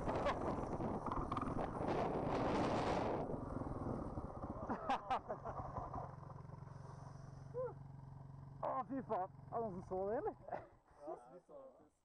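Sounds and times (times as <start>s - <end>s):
motorcycle engine idling: 3.3s - 11.1s
person crying out: 7.5s - 7.8s.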